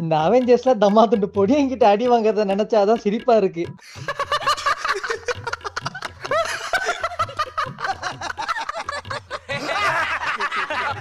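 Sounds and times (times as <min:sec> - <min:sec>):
men laughing together: 0:03.8 - 0:11.0.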